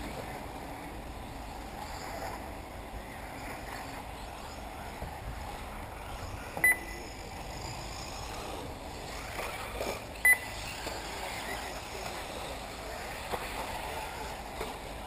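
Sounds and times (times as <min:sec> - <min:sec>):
outdoor background noise: 0:00.0 - 0:15.0
electronic double beep: 0:06.6 - 0:07.0, 0:10.2 - 0:10.6.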